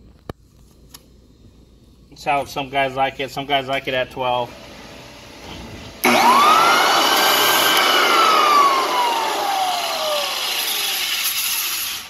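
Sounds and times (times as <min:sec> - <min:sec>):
floor sander motor whine: 0:04.5 - 0:12.0.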